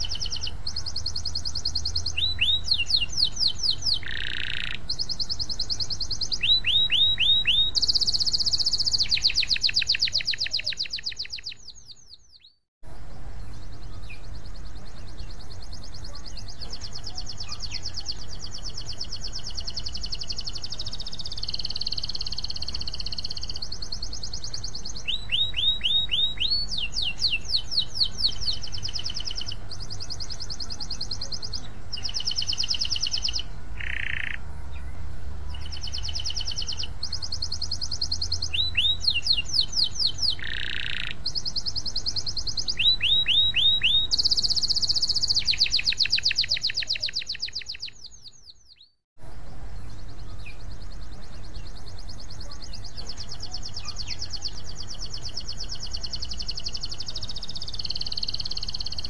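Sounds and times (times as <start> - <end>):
canary singing trills: 0.0 - 59.0.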